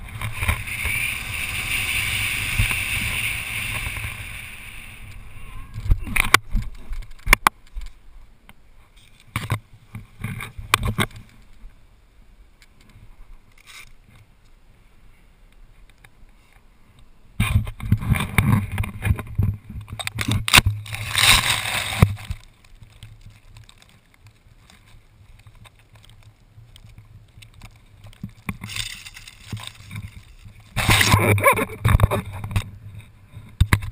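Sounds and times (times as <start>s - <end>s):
rustling and knocking on microphone: 17.4s - 23.7s.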